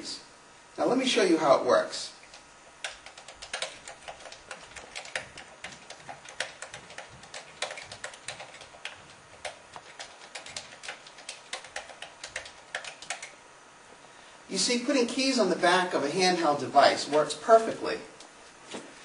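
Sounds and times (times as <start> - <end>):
keyboard keys clicking: 2.3 - 13.4.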